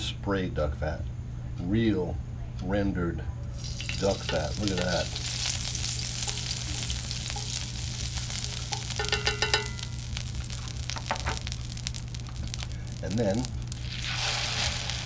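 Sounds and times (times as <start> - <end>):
fat sizzling on a griddle: 3.5 - 15.0.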